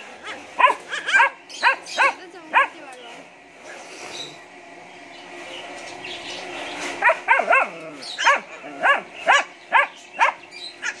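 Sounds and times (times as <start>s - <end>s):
puppy yipping: 0.2s - 2.7s.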